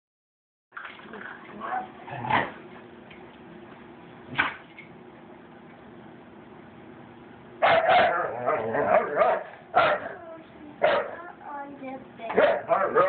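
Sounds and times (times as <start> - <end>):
steady background hum: 0.8 - 13.0.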